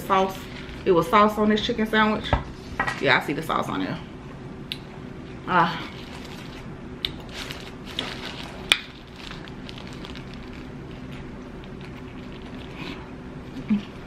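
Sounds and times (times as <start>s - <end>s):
steady low hum: 0.0s - 14.0s
crispy sandwich crunching: 5.8s - 14.0s
faint chewing: 5.9s - 14.0s.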